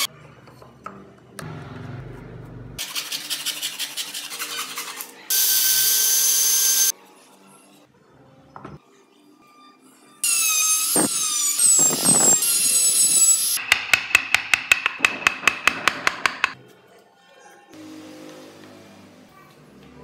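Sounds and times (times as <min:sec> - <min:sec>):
rotary tool whining cutting wood: 0:10.2 - 0:13.6
mallet tapping chisel: 0:13.6 - 0:16.6.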